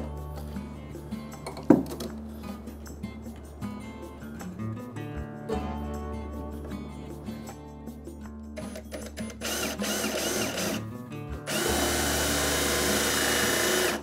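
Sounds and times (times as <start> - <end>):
acoustic guitar music: 0.0 - 14.0
cordless drill running: 8.7 - 10.8, 11.5 - 14.0.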